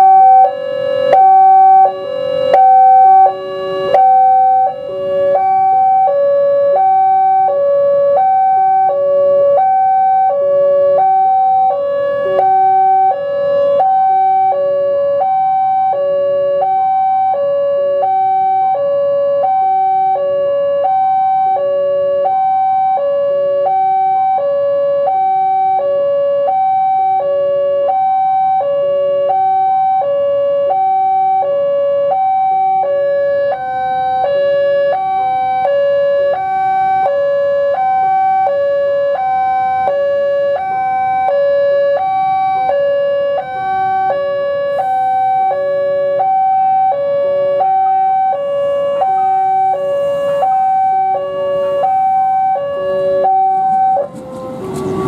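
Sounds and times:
level crossing alarm chime: 0.0 - 7.6, 9.6 - 16.1, 42.6 - 55.0.

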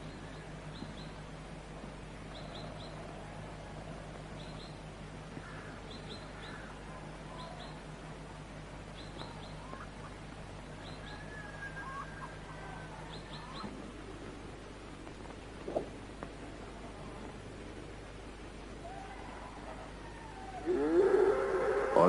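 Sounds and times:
small birds chirping: 0.0 - 1.4, 2.2 - 14.5
film soundtrack hiss and hum: 0.0 - 22.0
faint whistled bird calls: 10.8 - 13.8.

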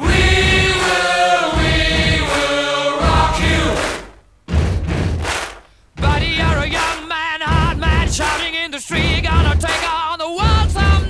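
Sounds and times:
voices singing held notes: 0.0 - 4.1
heavy low beat: 0.0 - 11.0.

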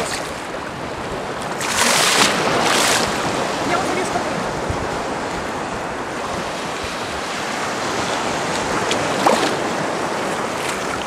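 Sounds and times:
waves washing in shallows: 0.0 - 11.0
wind on microphone: 0.0 - 11.0
swimmer splashing: 8.7 - 11.0.

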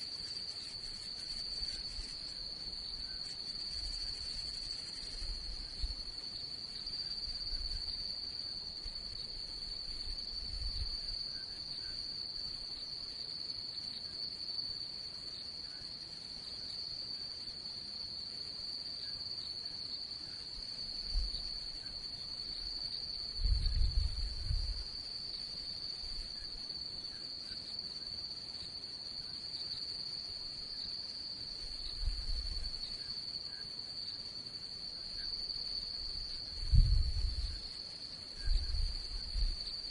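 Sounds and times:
crickets trilling: 0.0 - 39.9
dull low thumps: 36.6 - 37.5.

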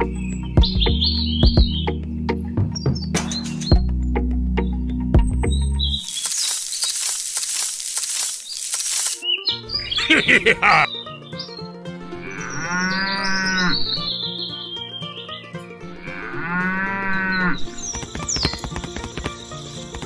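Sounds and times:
light background music: 0.0 - 6.1, 10.9 - 20.0
rapid clicks: 6.1 - 9.2
cow mooing: 12.1 - 13.9, 15.9 - 17.6.

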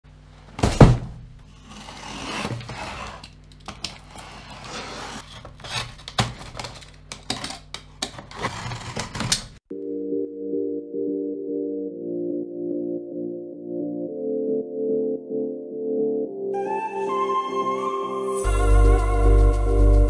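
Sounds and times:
cardboard box thump: 0.6 - 1.3
cardboard scraping and rustling: 0.6 - 6.9, 8.1 - 9.6
calm music with ringing tones: 9.7 - 20.0.

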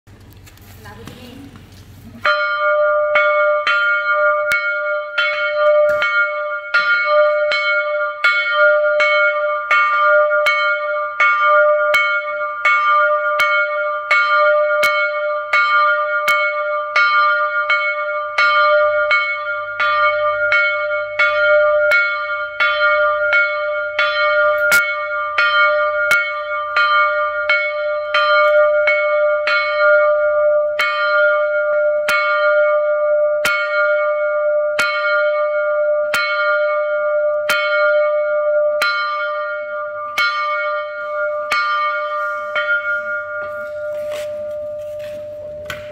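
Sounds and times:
church bell ringing: 1.0 - 45.9.

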